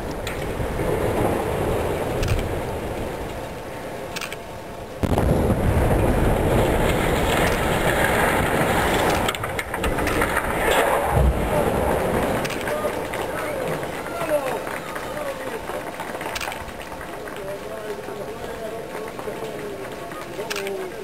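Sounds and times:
demolition rumble: 0.0s - 4.2s, 4.8s - 20.3s
loud chimney collapse rumble: 5.0s - 14.1s.

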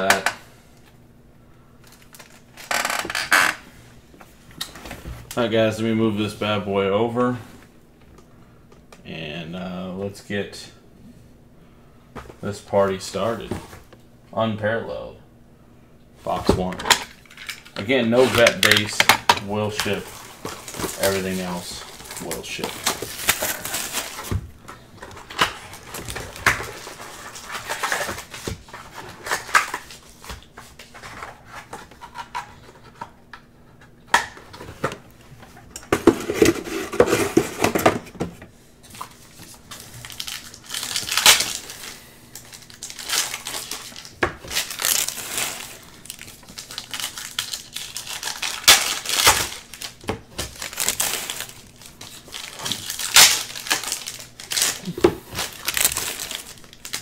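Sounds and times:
wrapper rustling: 16.9s - 32.2s, 39.0s - 57.0s.

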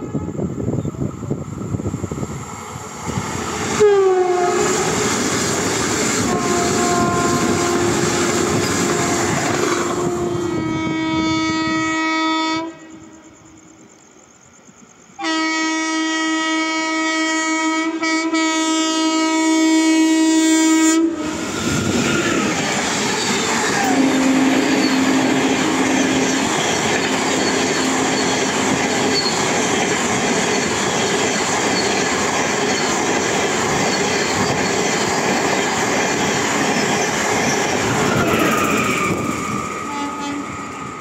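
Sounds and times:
train rumbling past: 0.0s - 41.0s
train horn blasts: 3.7s - 5.1s, 6.2s - 13.6s, 15.2s - 21.5s, 23.7s - 29.3s, 39.0s - 40.8s
train wheels clattering: 4.6s - 10.1s, 21.4s - 41.0s.

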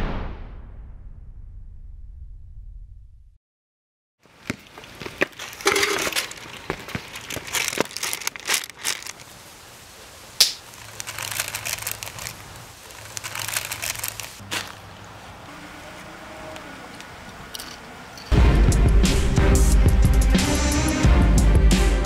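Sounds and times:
foil bag crinkling: 4.6s - 9.6s, 10.4s - 14.8s
chips being chewed: 5.2s - 9.2s, 10.7s - 14.8s
sharp snap: 10.4s - 10.6s.

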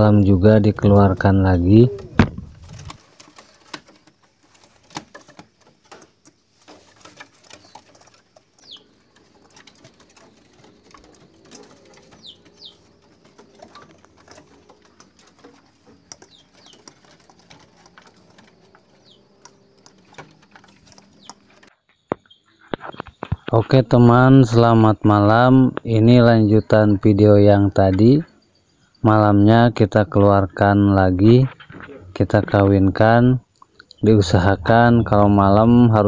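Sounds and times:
pigeon cooing: 1.5s - 3.5s, 7.0s - 21.7s.

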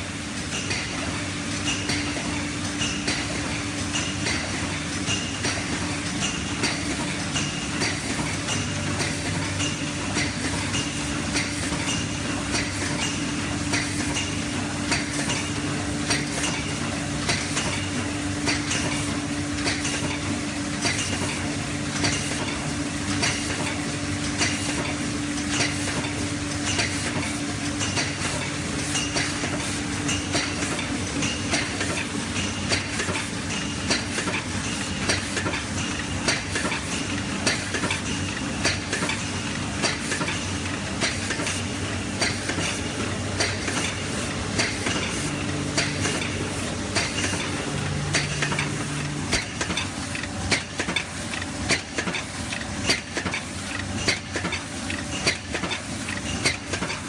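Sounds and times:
machine hum: 41.6s - 51.8s.

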